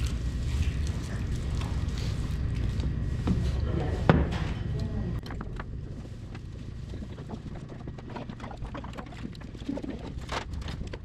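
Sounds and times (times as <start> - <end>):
low room rumble: 0.0 - 11.0.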